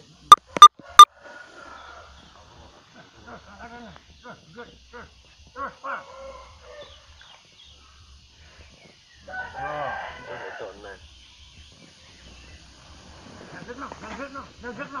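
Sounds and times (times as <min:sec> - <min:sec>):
rooster crowing: 0:00.8 - 0:02.2, 0:06.0 - 0:07.1, 0:09.3 - 0:11.0.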